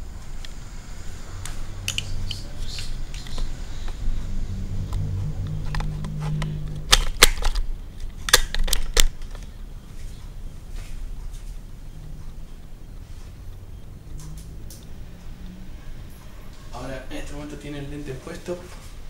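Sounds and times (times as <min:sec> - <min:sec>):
low rubbing rumble: 0:00.0 - 0:08.2
camera clicks and knocks: 0:05.7 - 0:09.5.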